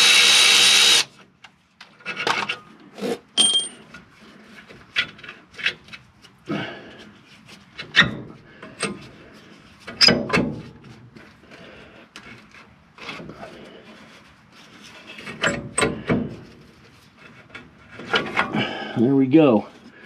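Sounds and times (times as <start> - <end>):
metal clanks and scrapes: 1.8 - 6.0, 14.7 - 18.6.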